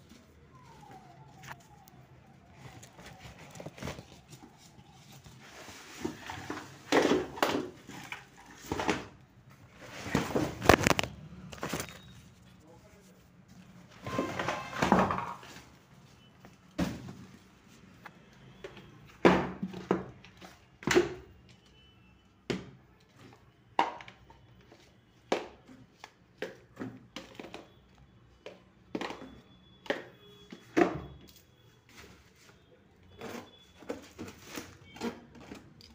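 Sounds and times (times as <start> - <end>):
packaging rustling: 0.8 - 12.6
plastic tubs knocking on tiled floor: 6.1 - 8.0, 14.2 - 15.5.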